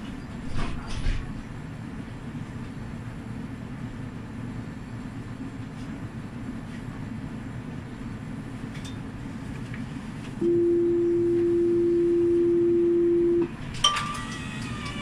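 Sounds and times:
tram rumble: 0:00.0 - 0:15.0
brief higher ringing tone: 0:10.4 - 0:14.2
steady warning tone: 0:10.4 - 0:15.0.

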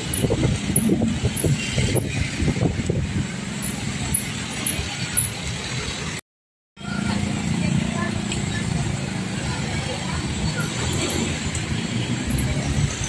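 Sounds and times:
vehicle engines passing: 0:00.0 - 0:06.2, 0:06.8 - 0:13.0
passersby talking: 0:06.8 - 0:13.0.

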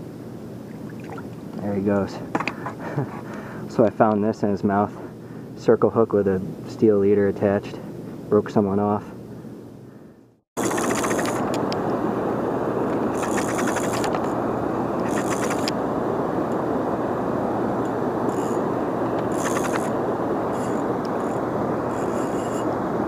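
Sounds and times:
fishing reel ticking: 0:10.6 - 0:11.6, 0:13.1 - 0:14.2, 0:15.0 - 0:15.7, 0:18.3 - 0:18.6, 0:19.3 - 0:19.9, 0:20.5 - 0:22.7.

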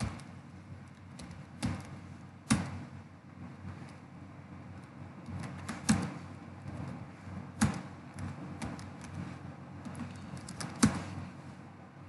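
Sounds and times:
computer keyboard typing: 0:00.9 - 0:01.9, 0:05.2 - 0:06.2, 0:07.6 - 0:09.2, 0:09.9 - 0:11.0.

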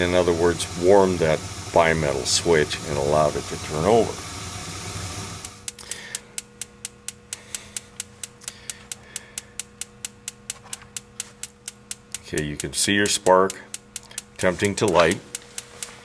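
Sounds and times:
gas burner rushing: 0:00.0 - 0:05.7
spark igniter clicking: 0:00.0 - 0:16.0.

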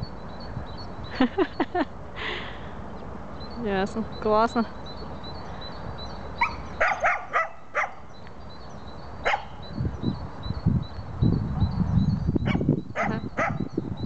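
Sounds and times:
dog barking: 0:06.4 - 0:08.0, 0:09.2 - 0:09.6, 0:12.5 - 0:13.6.

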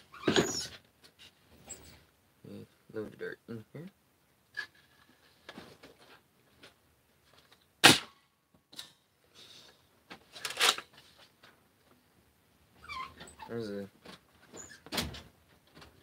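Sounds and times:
toy blaster firing crack: 0:07.8 - 0:08.2.

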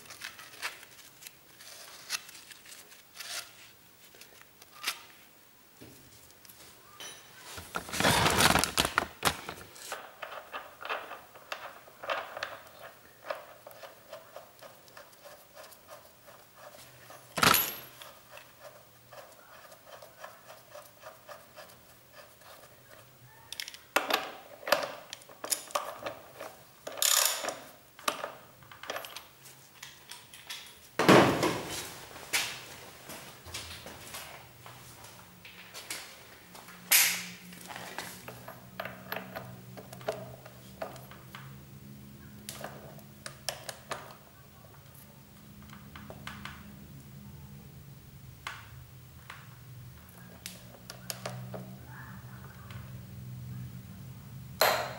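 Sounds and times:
metal parts clinking and scraping: 0:24.6 - 0:28.2.

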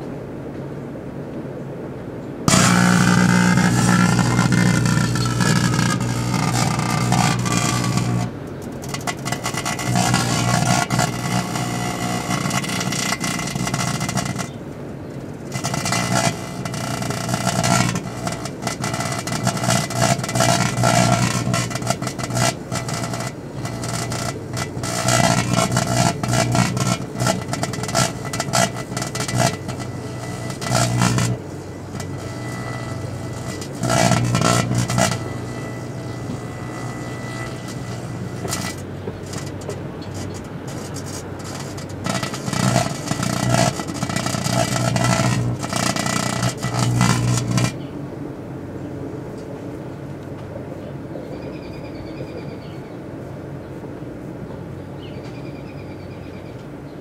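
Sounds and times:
crackling and hissing sparks: 0:02.5 - 0:14.6, 0:15.3 - 0:47.8
microwave oven humming: 0:02.5 - 0:14.6, 0:15.5 - 0:47.9.

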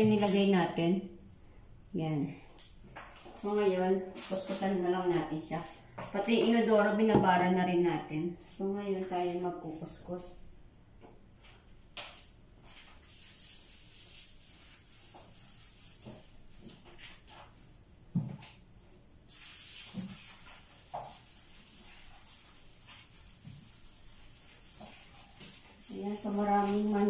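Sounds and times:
scouring a bathtub: 0:12.7 - 0:17.6, 0:19.3 - 0:27.0.

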